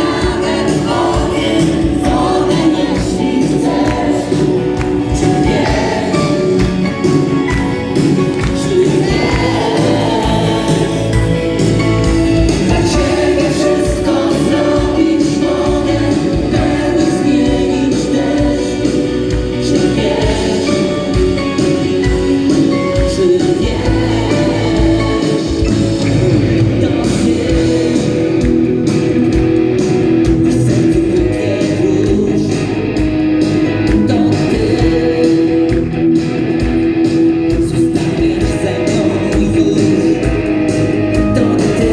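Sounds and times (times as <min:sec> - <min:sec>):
backing voices: 0:00.0 - 0:21.0
person singing: 0:00.0 - 0:28.6, 0:30.2 - 0:32.8, 0:33.7 - 0:35.9, 0:37.5 - 0:40.5, 0:41.1 - 0:41.9
electric guitars: 0:00.0 - 0:41.9
keyboard: 0:00.0 - 0:41.9.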